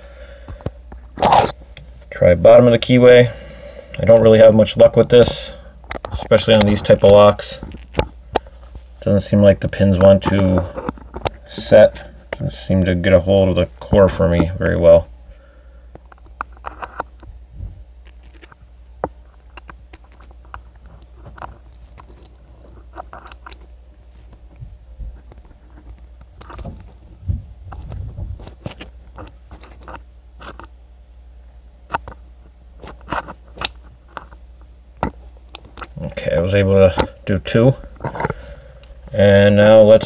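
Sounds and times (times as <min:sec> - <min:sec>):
steady low hum: 0:00.0 - 0:40.0
lock pick clicks and scrapes: 0:16.1 - 0:17.2, 0:22.9 - 0:23.7, 0:28.4 - 0:30.7, 0:32.8 - 0:34.4.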